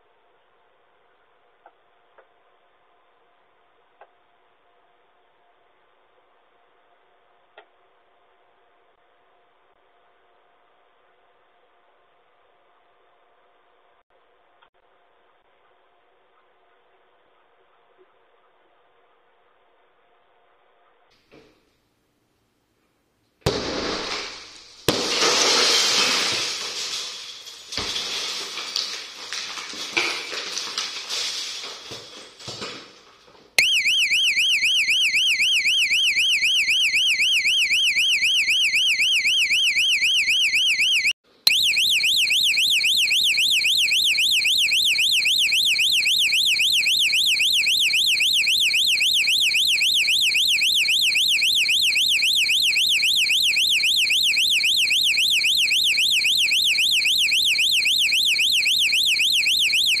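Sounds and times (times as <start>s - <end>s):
warbling alarm siren: 33.6s - 60.0s.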